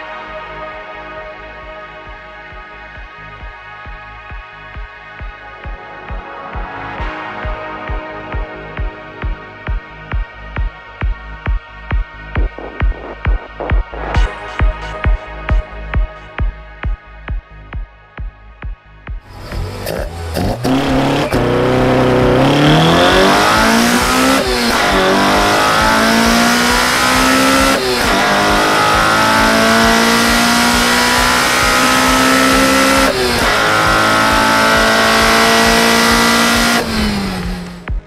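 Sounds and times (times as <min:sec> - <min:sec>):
car engine revving at full throttle: 0:19.3 - 0:38.0.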